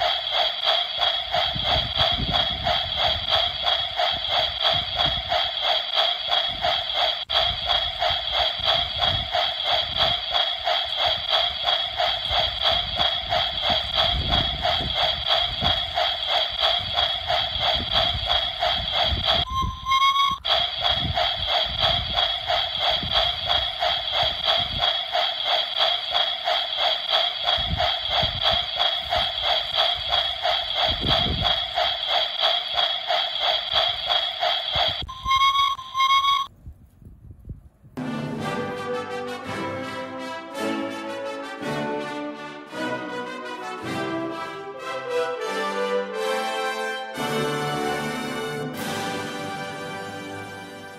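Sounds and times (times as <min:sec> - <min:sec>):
model steam locomotive chuffing: 0:00.0 - 0:36.5
rising whistle: 0:00.0 - 0:36.5.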